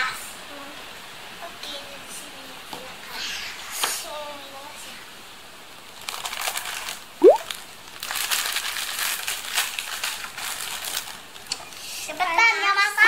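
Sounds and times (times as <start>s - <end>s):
plastic packaging crinkling: 6.0s - 11.5s.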